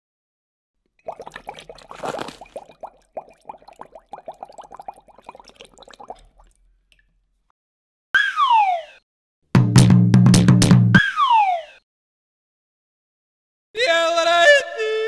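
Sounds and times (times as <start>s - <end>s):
water bubbling: 1.0s - 6.6s.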